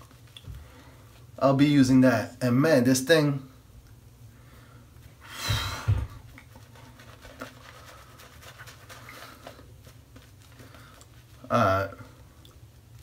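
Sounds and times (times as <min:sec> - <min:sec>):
low thump: 0:05.5 - 0:06.2
shaving brush crackling through foam: 0:06.3 - 0:11.8.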